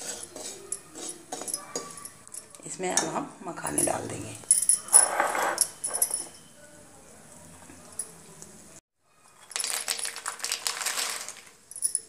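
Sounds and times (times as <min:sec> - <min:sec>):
seeds crackling in hot oil: 0:09.3 - 0:11.7
light clinks: 0:11.7 - 0:12.0.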